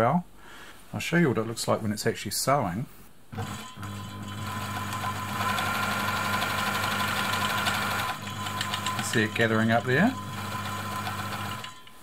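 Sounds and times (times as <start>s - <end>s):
sewing machine stitching: 3.4s - 12.0s.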